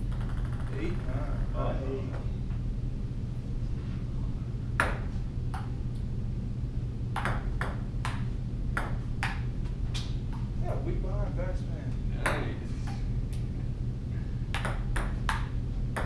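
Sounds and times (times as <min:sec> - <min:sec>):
low hum: 0:00.0 - 0:16.0
table tennis ball hits: 0:04.8 - 0:05.7, 0:07.2 - 0:09.5, 0:12.2 - 0:12.5, 0:14.5 - 0:16.0.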